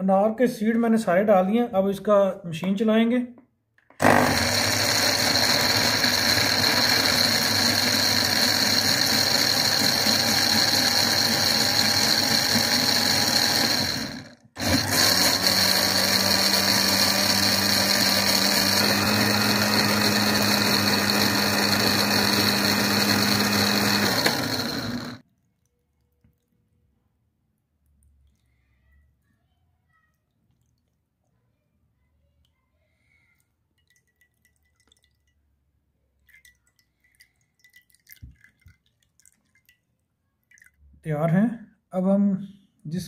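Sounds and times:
electric blender motor running: 4.0 - 25.2.

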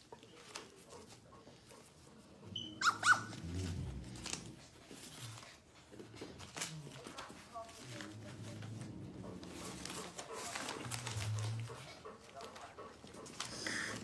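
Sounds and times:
newspaper rustling: 0.0 - 2.3, 3.3 - 14.0
puppy yelping: 2.5 - 3.5.

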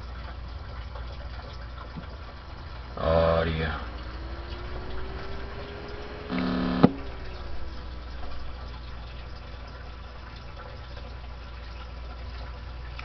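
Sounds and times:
cooling fan whirring: 0.0 - 13.0
brief pitched buzz: 2.5 - 9.0.

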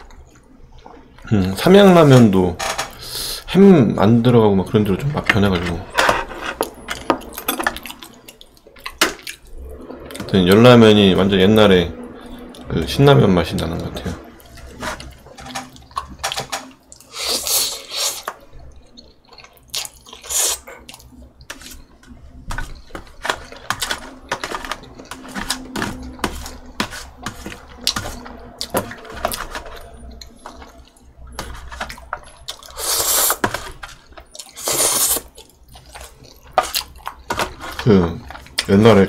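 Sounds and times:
wet chewing: 16.9 - 38.7
fork scraping foil tray: 22.5 - 30.0.

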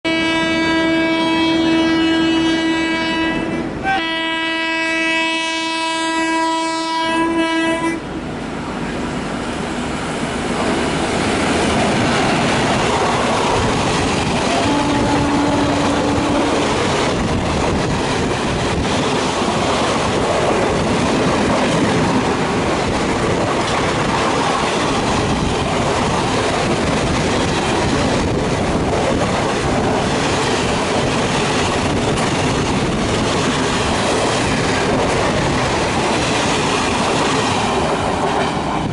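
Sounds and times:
locomotive horn blast: 0.1 - 8.1, 14.5 - 16.7
train wheels clattering over rail joints: 11.2 - 38.9.

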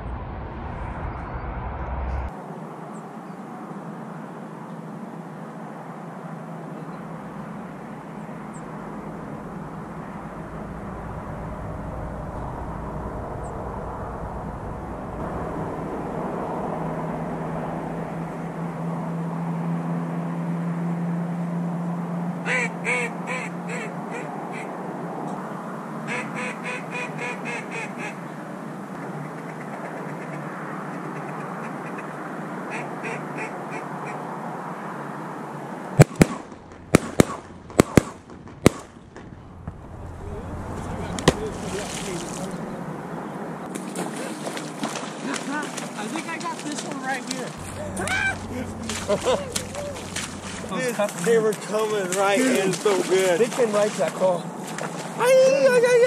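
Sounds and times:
duck call quacks: 22.4 - 24.7, 26.1 - 28.2, 32.7 - 34.2
shotgun shots: 36.0 - 39.3.

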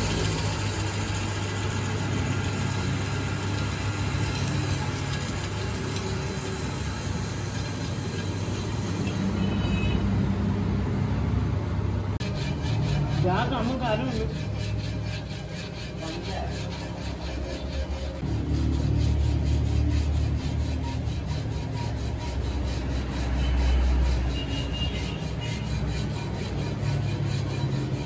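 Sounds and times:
sandpaper hissing on spinning rim: 0.0 - 9.8, 12.2 - 28.0
lathe motor hum: 0.0 - 9.9
sandpaper rubbed by hand: 12.2 - 28.0.

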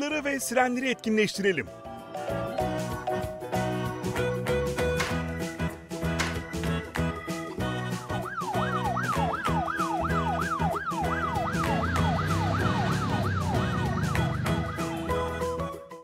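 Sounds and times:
children's background music: 0.0 - 16.0
police siren yelping: 7.8 - 15.7.

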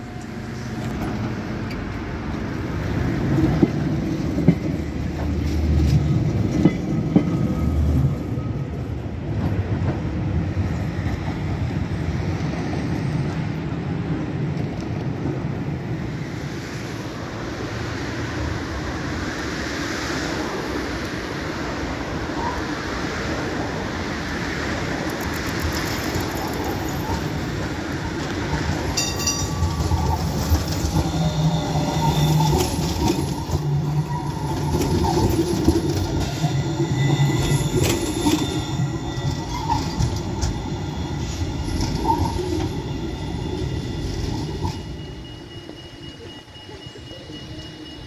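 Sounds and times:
street background: 0.0 - 48.0
high wheel squealing: 25.7 - 48.0.

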